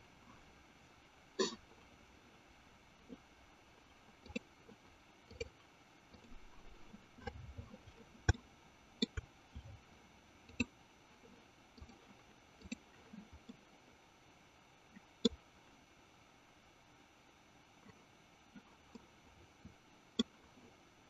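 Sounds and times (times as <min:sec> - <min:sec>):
computer mouse clicking: 0:06.1 - 0:07.4, 0:09.0 - 0:09.3, 0:10.5 - 0:10.7.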